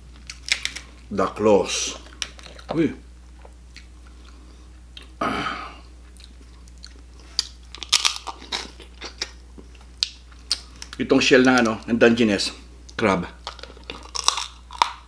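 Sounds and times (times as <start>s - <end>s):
crunching and chewing crab: 0.1s - 1.0s, 6.0s - 11.8s, 13.4s - 15.0s.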